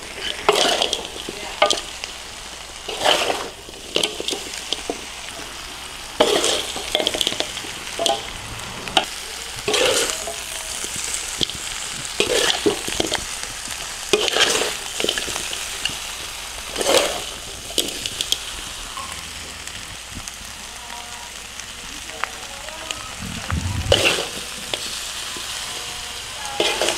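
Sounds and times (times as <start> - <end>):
meat sizzling in a hot pan: 0.0 - 26.9
spatula scraping a pan: 0.1 - 1.9, 2.8 - 5.6, 6.2 - 13.4, 14.1 - 15.9, 16.7 - 18.2, 26.6 - 26.9.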